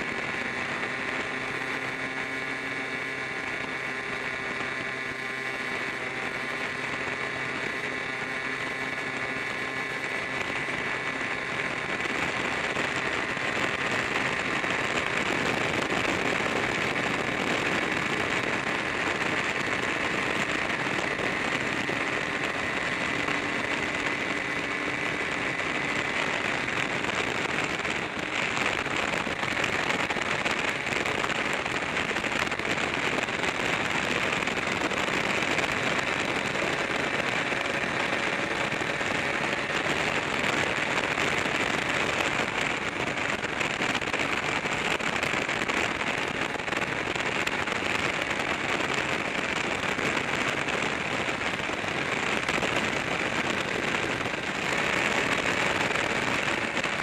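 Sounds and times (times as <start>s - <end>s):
road noise: 0.0s - 57.0s
scooter engine drone: 0.0s - 57.0s
wind rush: 0.0s - 57.0s.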